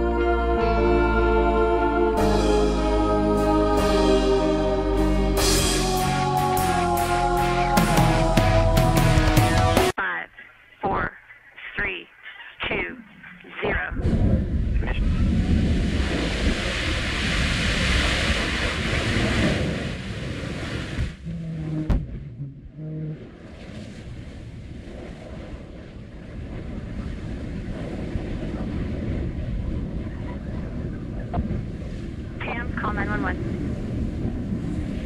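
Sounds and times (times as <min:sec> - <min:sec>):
continuous rumble: 0:21.0 - 0:35.0.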